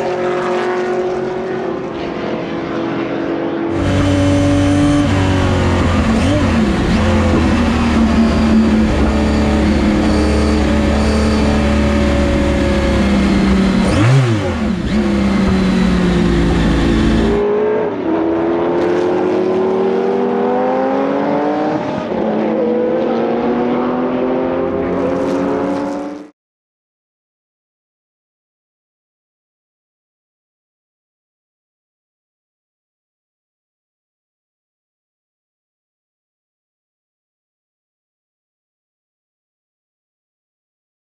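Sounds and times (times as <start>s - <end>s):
racing engine accelerating: 0.0s - 26.3s.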